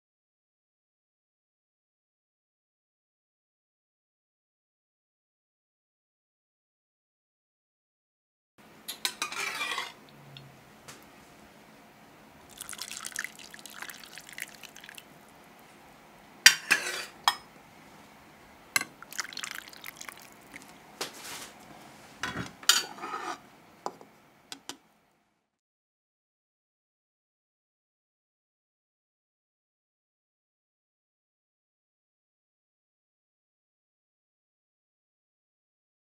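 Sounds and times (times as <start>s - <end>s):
liquid trickling and dripping: 12.5s - 15.1s, 19.0s - 20.8s.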